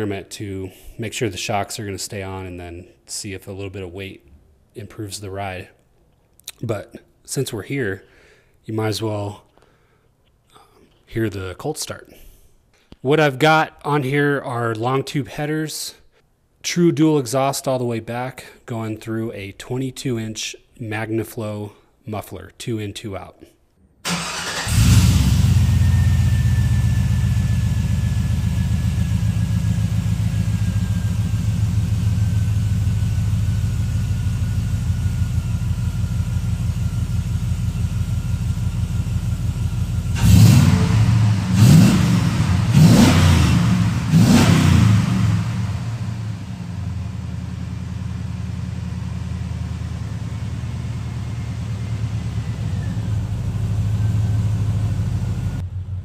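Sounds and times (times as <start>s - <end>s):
truck engine starting and idling: 24.0s - 56.0s
engine revving: 24.1s - 31.6s, 39.7s - 47.6s.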